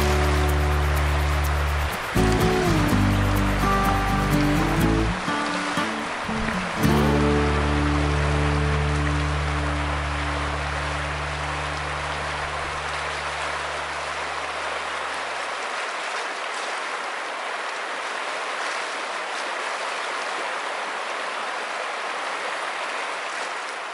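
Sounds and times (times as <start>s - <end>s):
low held music chord: 0.0s - 13.0s
river water rushing over rocks: 0.0s - 23.9s.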